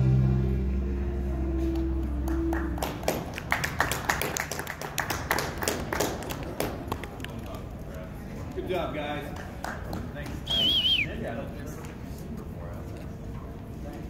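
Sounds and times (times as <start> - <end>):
band chord ringing out: 0.0 - 2.5
people clapping: 1.6 - 12.1.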